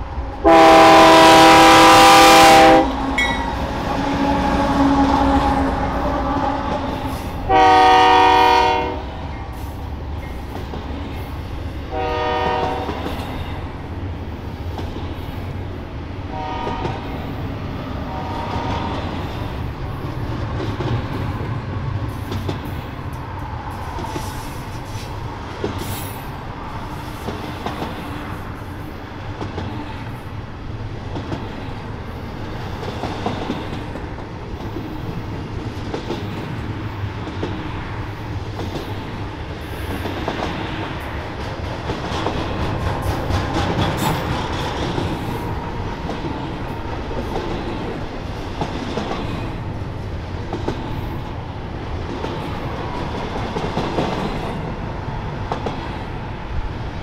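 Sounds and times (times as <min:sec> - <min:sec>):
train wheels clacking on rails: 0:00.0 - 0:15.6, 0:16.3 - 0:30.4, 0:31.0 - 0:56.4
locomotive horn blasts: 0:00.4 - 0:05.5, 0:07.5 - 0:09.1, 0:11.9 - 0:13.0, 0:16.3 - 0:17.0, 0:18.1 - 0:18.9.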